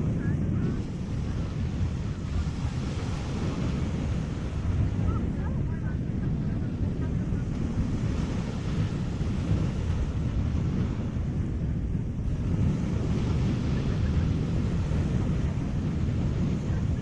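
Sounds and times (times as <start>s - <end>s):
sea waves washing: 0.0s - 17.0s
wind buffeting microphone: 0.0s - 17.0s.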